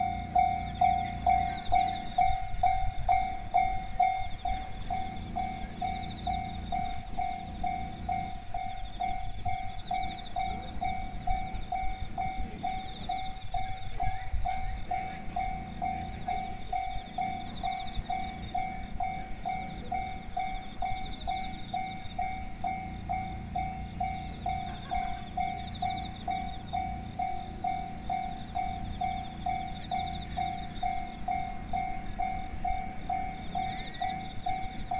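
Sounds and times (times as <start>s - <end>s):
level crossing warning bell ringing: 0.0s - 34.9s.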